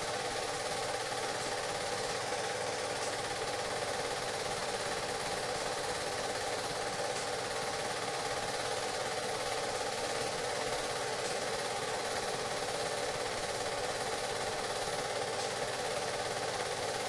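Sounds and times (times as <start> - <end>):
machine drone with fast flutter: 0.0 - 17.0.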